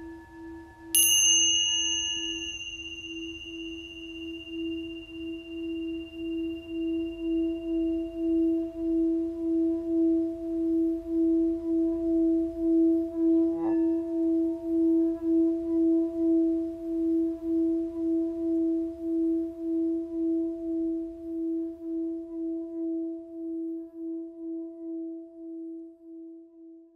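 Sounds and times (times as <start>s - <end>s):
wobbling drone tone: 1.8s - 21.0s.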